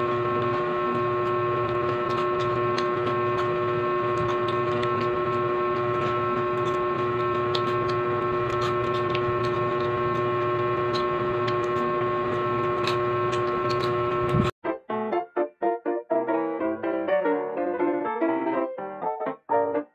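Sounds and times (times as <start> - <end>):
machine hum with held tones: 0.0 - 14.6.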